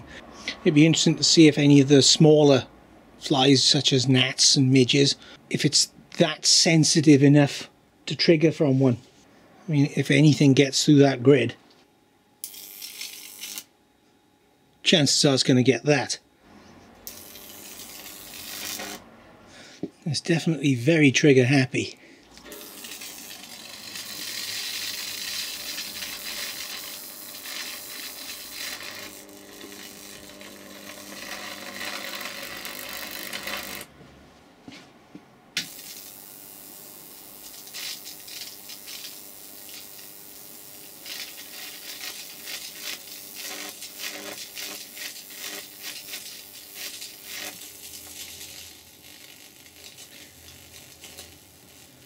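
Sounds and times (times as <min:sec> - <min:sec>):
faint electrical buzz: 0:00.0 - 0:52.0
electric arc crackling: 0:12.4 - 0:13.7, 0:17.0 - 0:19.1, 0:22.4 - 0:33.9, 0:35.6 - 0:52.0.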